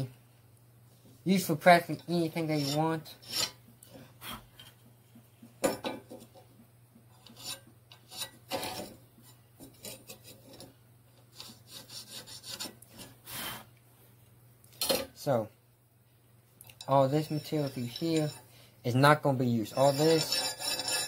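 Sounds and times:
soapstone scraping on steel: 2.0s - 3.6s, 7.1s - 10.7s, 11.3s - 13.2s, 16.8s - 18.5s, 19.6s - 21.0s
steel sliding on steel table: 19.8s - 21.0s.

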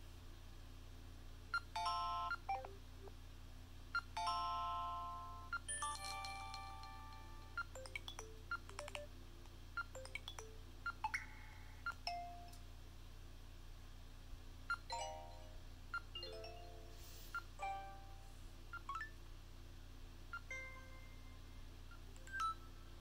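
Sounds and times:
phone notification chimes and beeps: 1.6s - 2.7s, 4.0s - 9.1s, 21.9s - 22.8s.

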